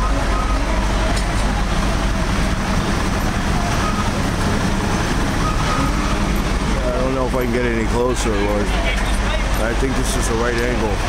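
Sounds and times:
fire truck engine running: 0.0 - 11.0.

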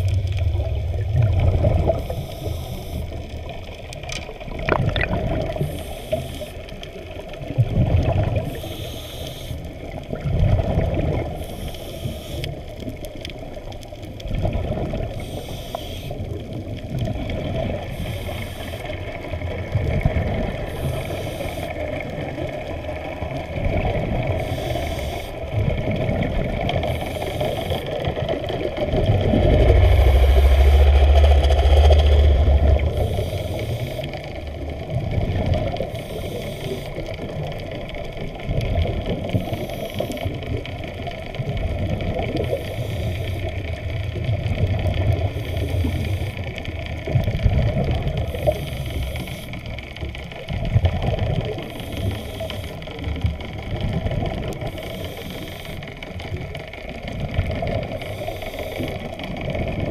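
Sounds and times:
water surging against camera case: 0.0 - 59.9
steady low hum: 29.2 - 34.6.

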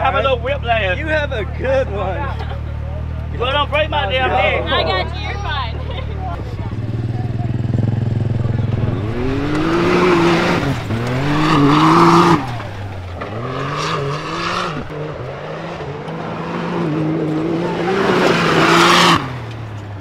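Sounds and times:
engine revving: 6.2 - 20.0.

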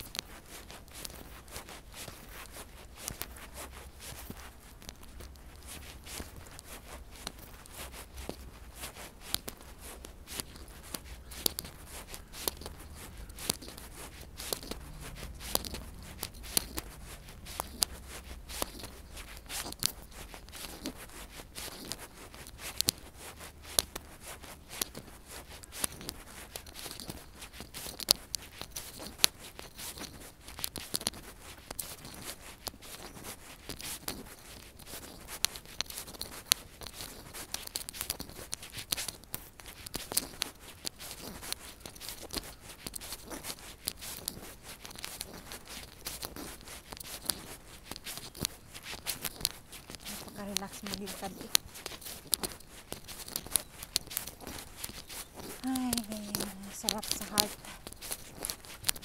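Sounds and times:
phone microphone handling rustle: 0.0 - 59.0.

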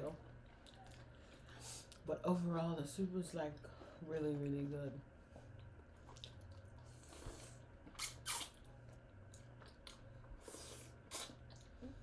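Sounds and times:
low steady hum: 0.0 - 12.0
mouth smacking and sucking: 6.1 - 8.7, 9.7 - 11.9.

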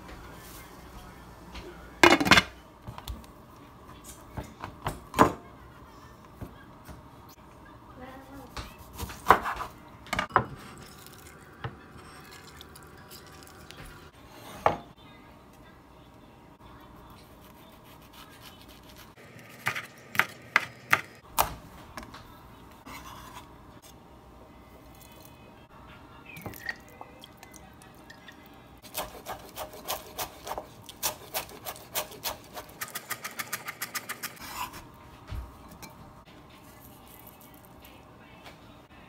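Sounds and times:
knife chopping on cutting board: 8.6 - 9.7.

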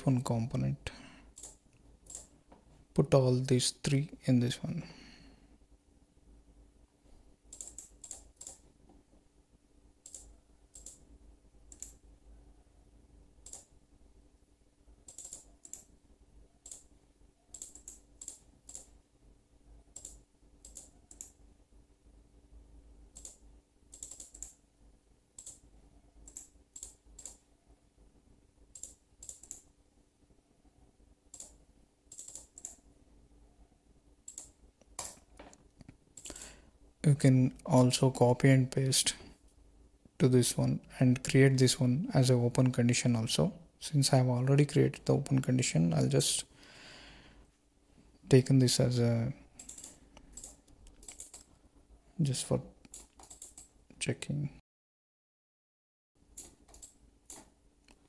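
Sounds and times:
faint steady hum: 0.0 - 54.6, 56.2 - 58.0
mouse and keyboard clicks: 15.1 - 15.9.

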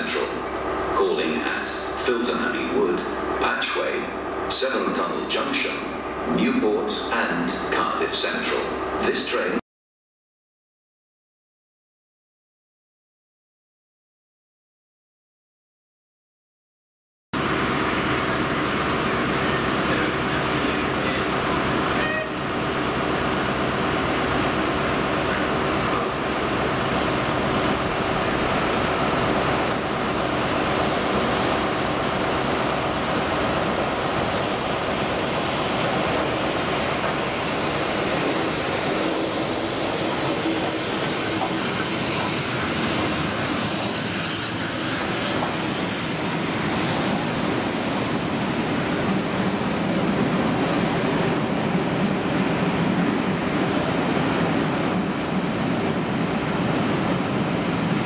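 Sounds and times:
coach wheels rumbling: 17.4 - 58.0
steam train passing: 17.4 - 58.0.

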